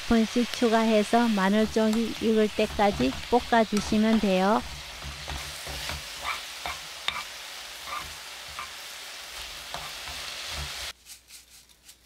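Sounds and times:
food sizzling in a frying pan: 0.0 - 11.0
spatula scraping and knocking pan: 1.1 - 8.8, 9.4 - 10.9.

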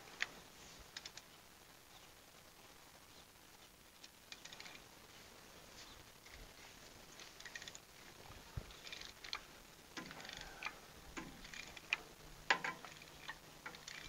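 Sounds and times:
ratchet wrench clicking: 10.0 - 14.0.

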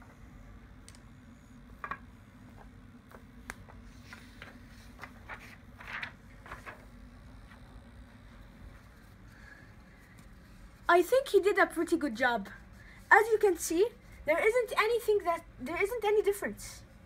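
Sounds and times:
low steady hum: 0.0 - 17.0
paper rustling: 3.1 - 7.6.

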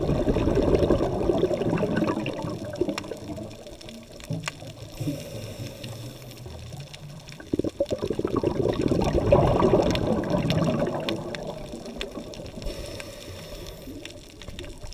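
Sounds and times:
faint steady hiss: 0.0 - 14.9
underwater rush of water: 0.0 - 14.9.

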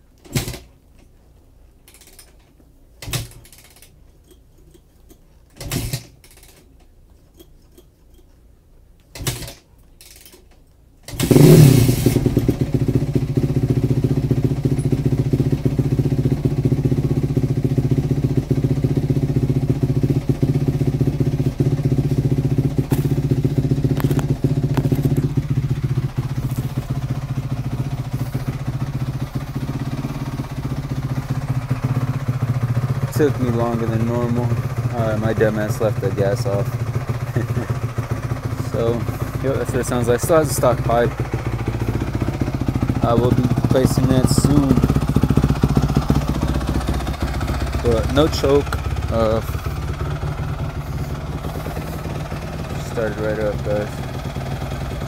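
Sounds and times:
motorcycle kick-start kicks: 0.2 - 0.8, 1.9 - 4.8, 5.5 - 7.9, 9.1 - 55.0
motorcycle engine idling: 11.1 - 55.0.

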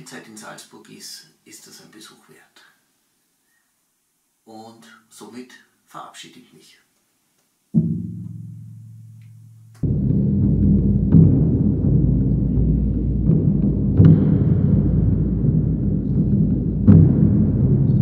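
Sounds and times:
low drum boom: 7.8 - 9.2, 9.8 - 18.0
deep drum rumble with echo: 9.8 - 18.0.

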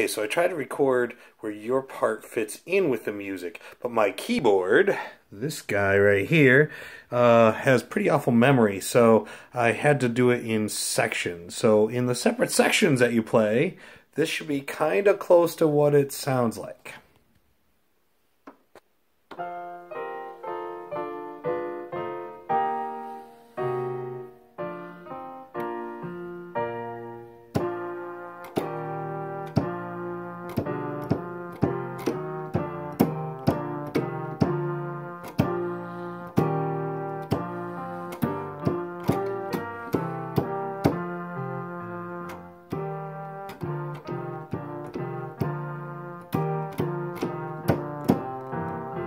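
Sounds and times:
electronic keyboard piano chords: 19.3 - 49.0.

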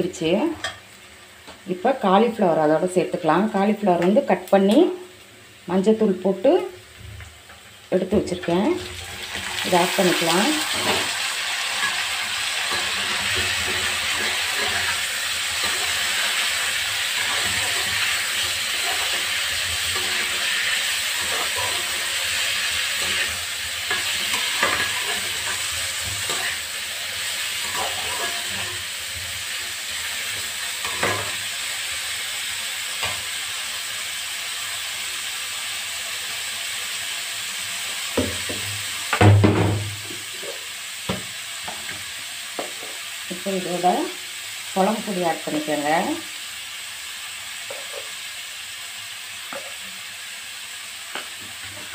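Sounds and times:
cauliflower sizzling in hot oil: 0.0 - 51.9.

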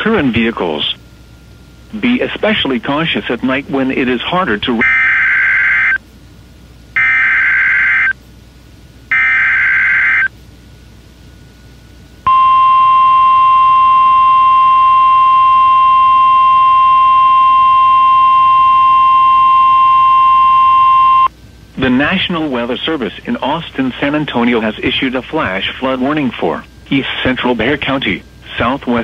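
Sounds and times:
steady warning alarm tone: 0.0 - 6.0, 7.0 - 8.2, 9.1 - 10.4, 12.2 - 21.3
warbling digital data bursts: 9.1 - 10.3.

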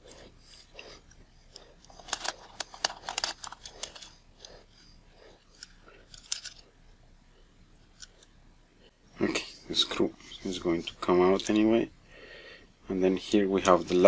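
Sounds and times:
metal lens parts clicking: 0.4 - 6.7, 7.8 - 8.3.

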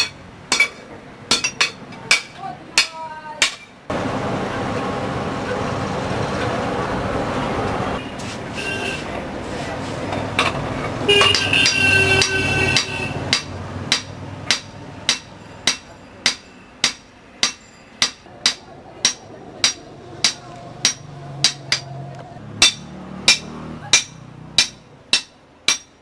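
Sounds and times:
hammer blows on anvil: 22.6 - 26.0.

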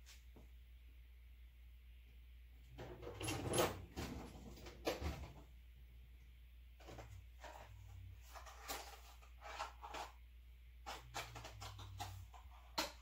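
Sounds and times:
faint clicks and scrapes: 6.8 - 10.2, 10.8 - 13.0.

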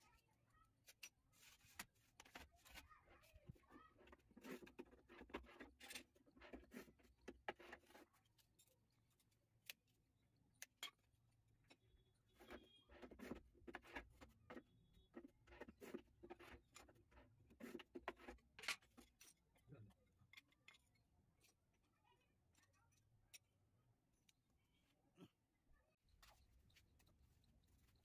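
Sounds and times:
ceramic tiles clicking and knocking: 3.5 - 23.7.

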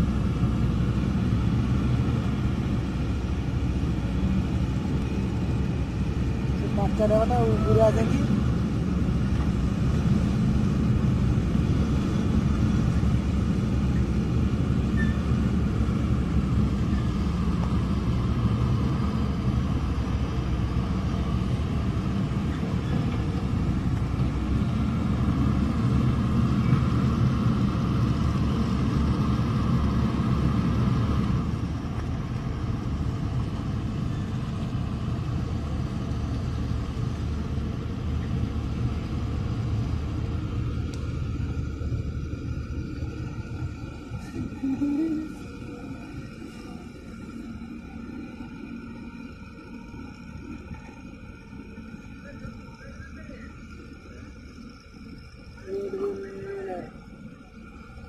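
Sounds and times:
excavator diesel engines rumbling: 0.0 - 58.0.

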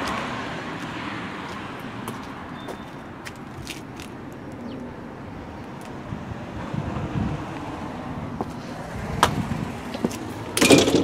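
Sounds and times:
metal door clattering: 10.6 - 11.0.

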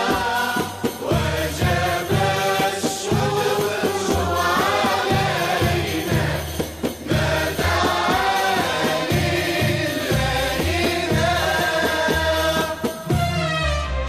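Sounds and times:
voices singing: 0.0 - 13.2
percussion strokes: 0.0 - 14.0.

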